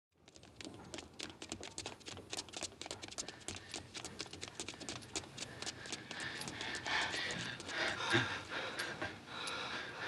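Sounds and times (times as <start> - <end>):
footsteps running on a footbridge: 0.2 - 8.9.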